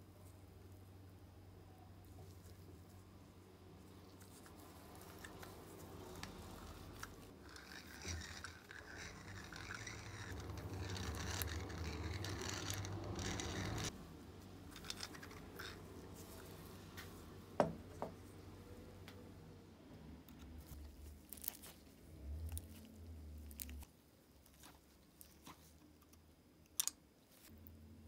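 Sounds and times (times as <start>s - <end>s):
pepper grinder grinding and rasping: 4.4s - 14.0s.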